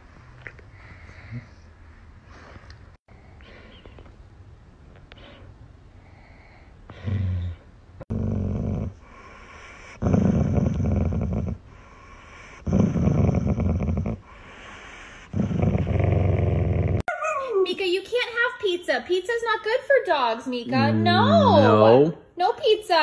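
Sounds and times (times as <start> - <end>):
dog growling: 7.0 - 9.2, 9.9 - 11.7, 12.5 - 14.4, 15.3 - 17.4.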